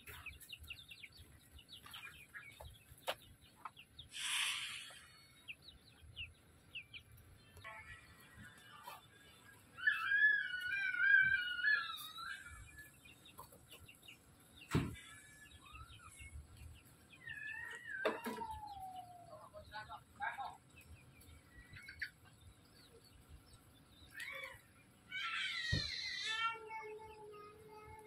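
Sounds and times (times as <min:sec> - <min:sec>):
fowl cheeping and calling: 0:07.6 - 0:14.1, 0:17.2 - 0:20.5.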